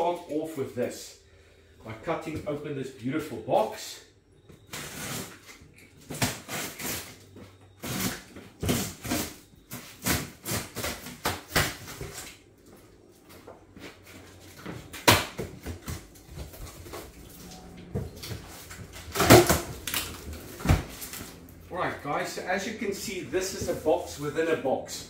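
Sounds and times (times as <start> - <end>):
cardboard flaps folding open: 14.5 - 21.4.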